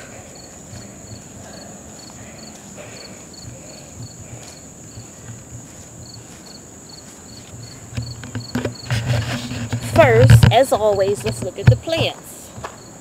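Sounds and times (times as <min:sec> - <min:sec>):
high-pitched insect trill: 0:00.0 - 0:09.0
crickets chirping: 0:00.0 - 0:13.0.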